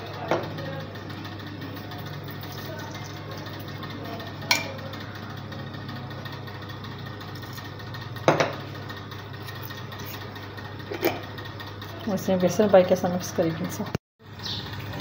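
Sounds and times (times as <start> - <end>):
kitchen utensils knocking: 4.5 - 4.8, 8.3 - 8.6.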